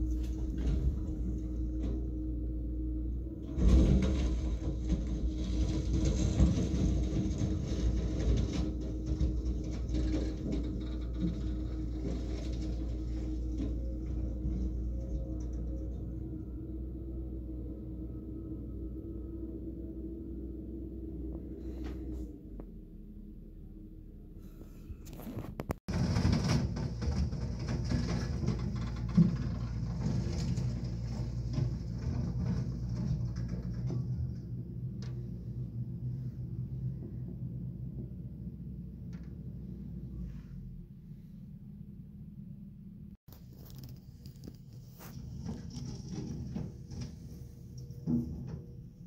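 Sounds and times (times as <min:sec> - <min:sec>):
excavator running: 0:00.0 - 0:22.3, 0:23.2 - 0:40.2, 0:43.3 - 0:49.0.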